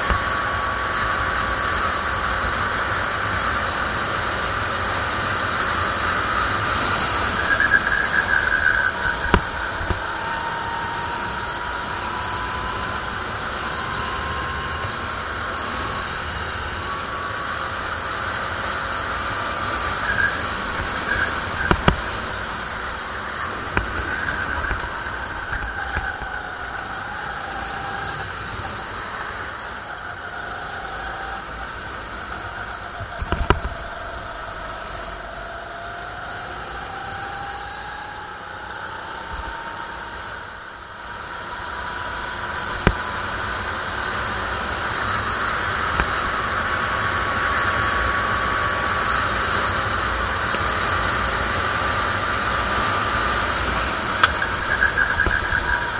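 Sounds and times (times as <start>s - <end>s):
kart engine running: 0.0s - 55.9s
sharp knocks: 20.6s - 22.4s.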